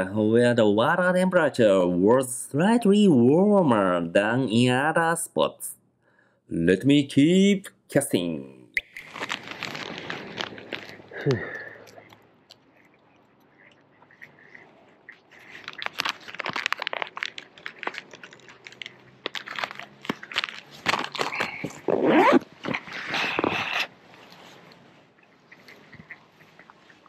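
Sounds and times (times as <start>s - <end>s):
plastic packet crinkling: 8.8s - 24.8s.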